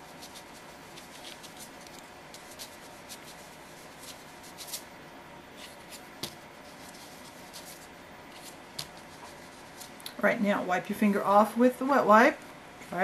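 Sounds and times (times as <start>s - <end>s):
fingertip rubbing with scratchy ticks: 0.0s - 4.8s
steady low hiss: 0.0s - 13.0s.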